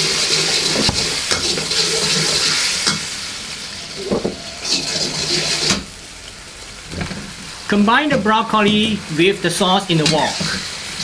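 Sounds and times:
sauce bubbling and sizzling: 0.0s - 11.0s
spatula scraping wok: 0.4s - 5.9s.

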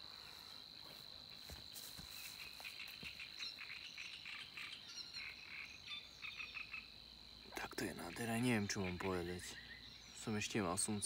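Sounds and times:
high insect trill: 0.0s - 11.0s
bird chirps: 2.2s - 11.0s.

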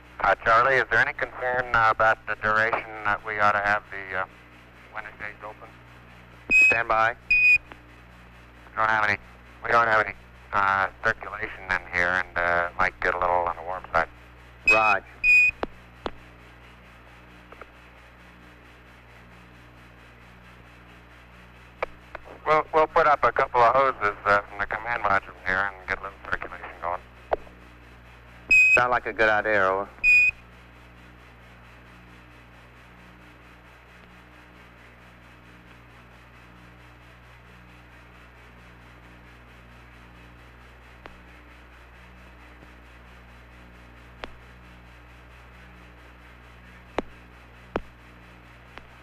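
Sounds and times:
radio hiss: 0.0s - 30.5s, 31.1s - 49.0s
low hum: 0.0s - 49.0s
radio clicks: 2.5s - 3.2s, 14.7s - 16.3s, 21.8s - 22.4s, 44.2s - 44.4s, 46.9s - 48.0s
short high beep: 6.5s - 7.6s, 14.7s - 15.5s, 28.5s - 28.8s, 30.0s - 30.3s.

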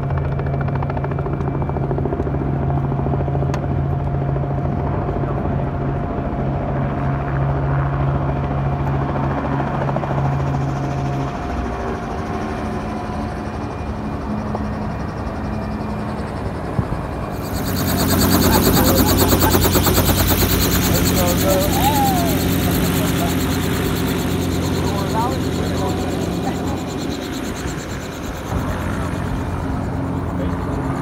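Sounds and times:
aircraft machinery hum: 0.0s - 31.0s
helicopter rotor and engine: 0.0s - 31.0s.

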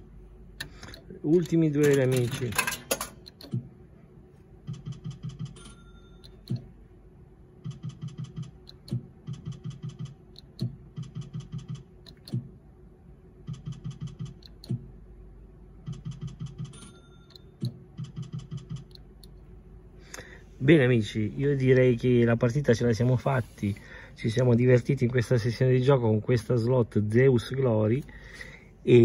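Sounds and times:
slot machine reels ticking: 4.7s - 6.7s, 7.6s - 12.3s, 13.4s - 14.8s, 15.8s - 19.4s
sharp clicks: 13.5s - 14.8s.

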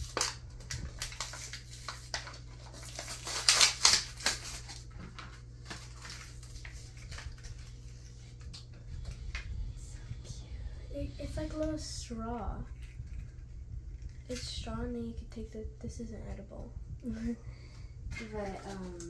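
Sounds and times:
packaging rustling and crackling: 0.0s - 9.5s, 18.1s - 19.0s.

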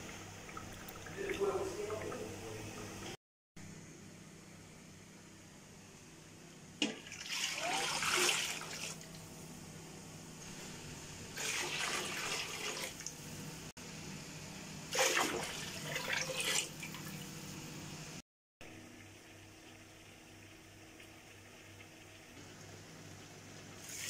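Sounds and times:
water pouring into a pot: 6.8s - 9.3s, 11.4s - 13.1s, 14.9s - 17.3s, 22.5s - 24.0s.

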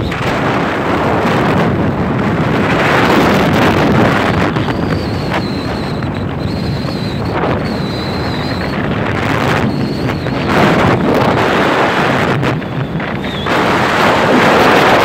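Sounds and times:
wind buffeting microphone: 0.0s - 15.0s
faint high whine: 4.2s - 14.3s.

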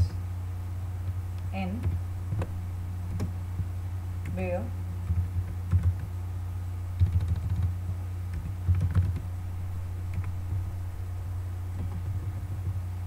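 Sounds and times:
steady low hum: 0.0s - 13.0s
typing on a computer keyboard: 5.0s - 6.1s, 7.0s - 7.7s, 8.3s - 9.3s.

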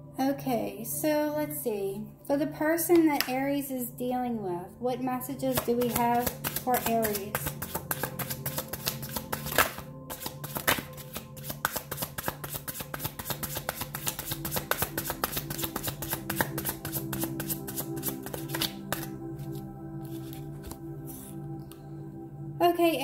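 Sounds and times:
soft background music: 0.0s - 23.0s
cards being shuffled: 5.5s - 21.8s.

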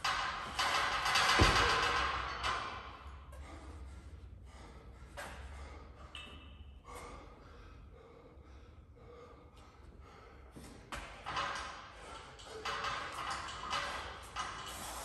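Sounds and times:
person breathing hard: 3.0s - 12.9s.

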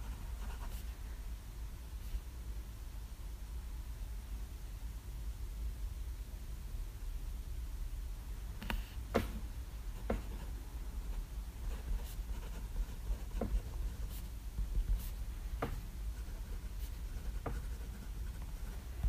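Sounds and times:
fountain pen scratching on paper: 0.0s - 0.8s, 11.6s - 18.9s.

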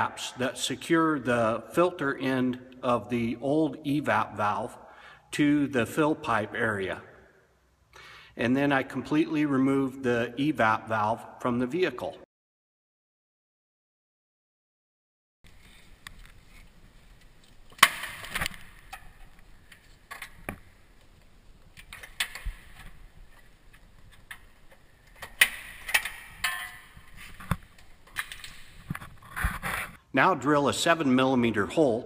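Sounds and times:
clicks and knocks of handled parts: 21.7s - 29.8s.

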